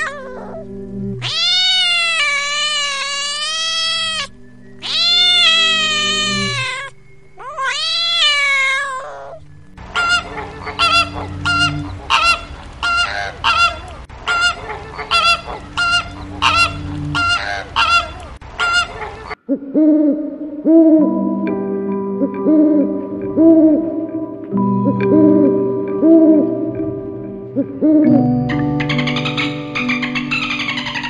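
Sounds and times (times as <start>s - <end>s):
flamingos honking: 0.0s - 7.0s, 7.6s - 19.4s, 22.5s - 31.0s
cat meowing: 1.2s - 9.4s.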